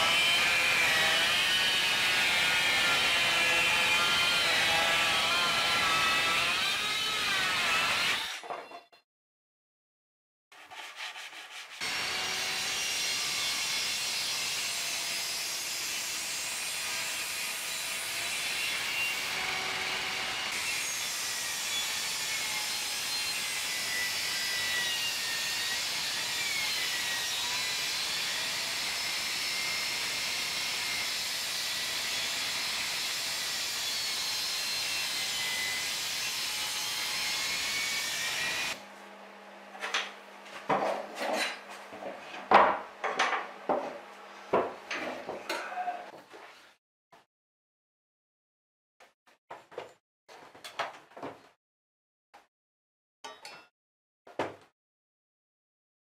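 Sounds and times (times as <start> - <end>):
table saw cutting wood: 0.0 - 8.5, 10.6 - 45.4.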